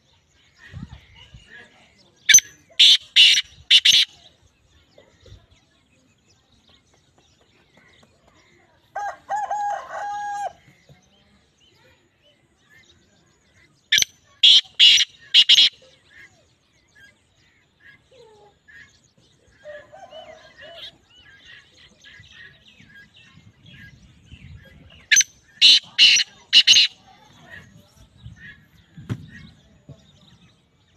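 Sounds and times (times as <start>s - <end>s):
small birds chirping faintly: 0.0s - 30.9s
francolin harsh calls: 2.3s - 4.3s, 13.9s - 16.3s, 25.1s - 27.0s
short steady-pitched bird call: 2.3s - 4.3s, 13.9s - 16.5s, 25.1s - 27.2s.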